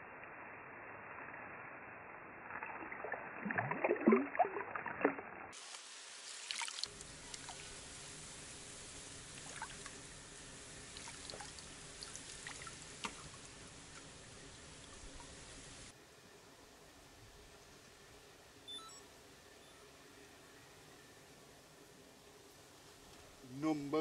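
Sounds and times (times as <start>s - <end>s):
water splashing: 2.4s - 15.9s.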